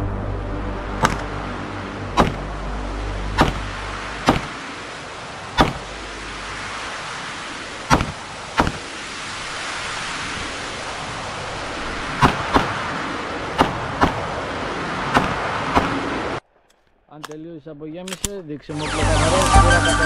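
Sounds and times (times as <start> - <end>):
steady rushing hiss: 1.0 - 16.6
pistol shots: 2.2 - 2.4, 3.4 - 3.6, 4.3 - 4.5, 5.6 - 5.8, 7.9 - 8.8.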